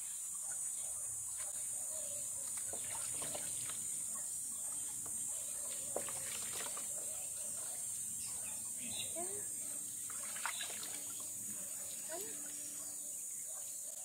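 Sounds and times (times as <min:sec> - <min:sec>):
water splashing in plastic tub: 0:02.5 - 0:04.0, 0:05.6 - 0:07.1, 0:10.0 - 0:11.4.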